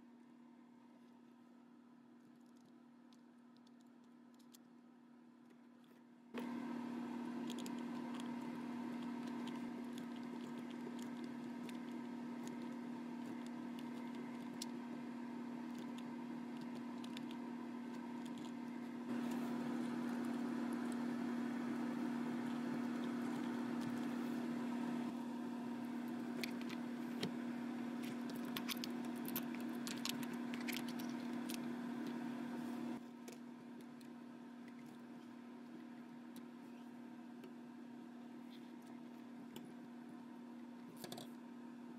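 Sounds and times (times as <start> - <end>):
steady low hum: 0.0 - 41.9.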